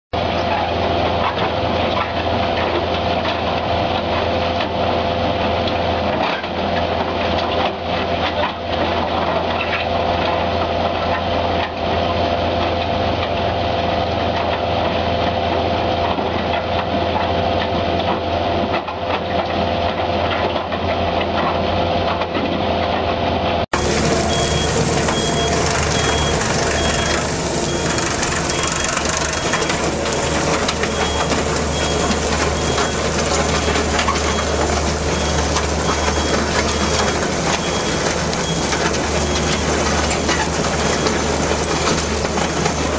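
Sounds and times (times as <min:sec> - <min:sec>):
skid steer engine: 0:00.2 - 0:42.9
tracked loader working: 0:00.2 - 0:42.9
high repeating beep: 0:23.8 - 0:39.7
crusher bucket crushing rubble: 0:23.8 - 0:42.9.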